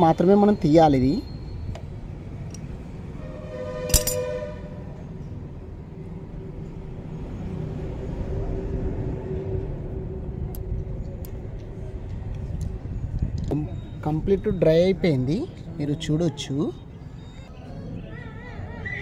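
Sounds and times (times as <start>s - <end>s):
steady low rumble: 8.0s - 13.5s.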